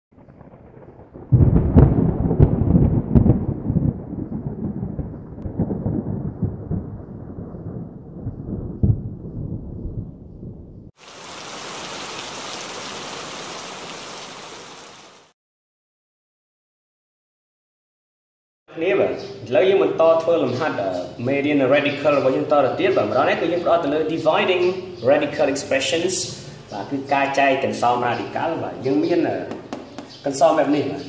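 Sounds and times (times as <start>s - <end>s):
thunder cracks and rumble: 0.2s - 10.9s
rain-like hiss: 11.0s - 15.3s.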